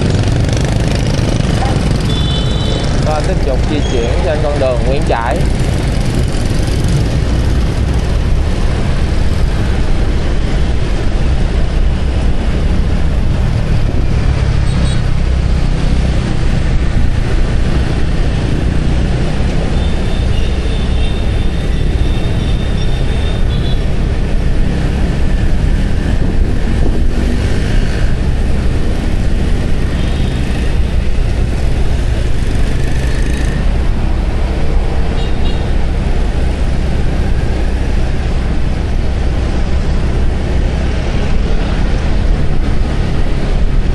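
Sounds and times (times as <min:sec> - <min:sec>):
passing traffic: 0:00.0 - 0:43.9
wind on microphone: 0:24.4 - 0:29.9.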